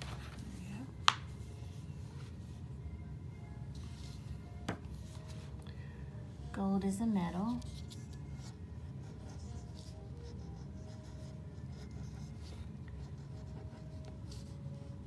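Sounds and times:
steady low hum: 0.0 - 15.0
marker pen scratching on paper: 7.6 - 14.6.

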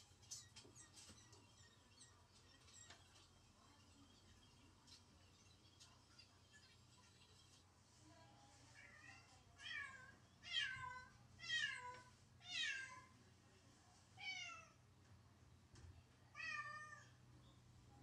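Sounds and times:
cat meowing: 16.4 - 17.1.

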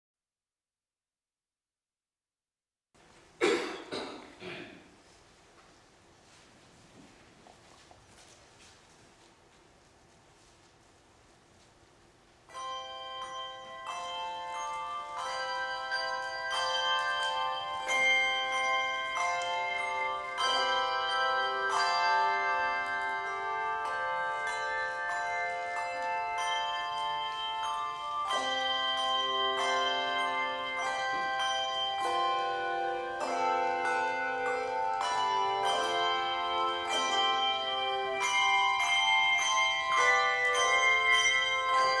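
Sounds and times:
handbell choir ringing: 12.5 - 42.0.

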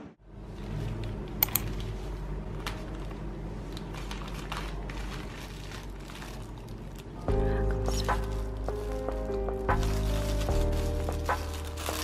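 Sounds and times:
plastic bag crinkling: 2.6 - 12.0.

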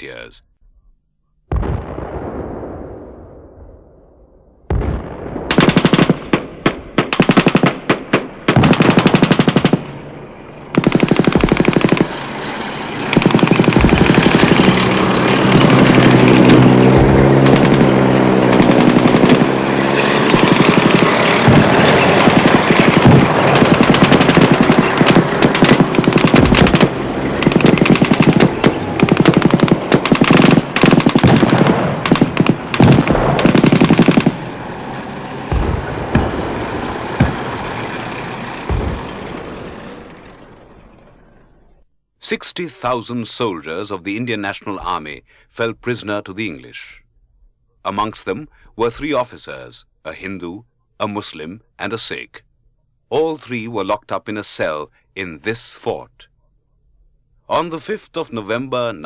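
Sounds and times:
machine-gun fire: 4.7 - 10.0, 10.7 - 34.6, 35.4 - 39.9.

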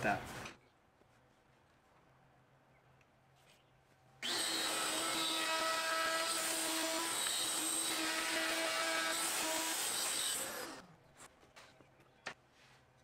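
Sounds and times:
router high whine: 4.2 - 10.9.

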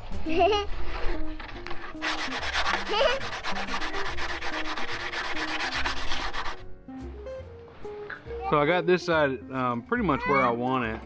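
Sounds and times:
sandpaper rubbing on metal: 1.8 - 6.6.

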